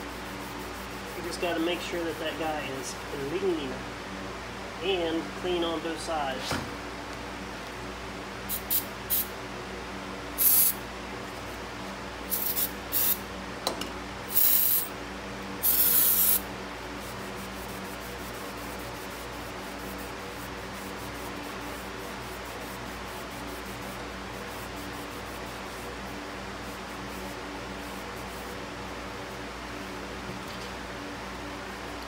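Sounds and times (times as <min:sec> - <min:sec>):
steady low hum: 0:00.0 - 0:32.0
aerosol spray hissing bursts: 0:08.5 - 0:09.3, 0:10.4 - 0:10.8, 0:12.3 - 0:13.2, 0:14.3 - 0:14.9, 0:15.6 - 0:16.4.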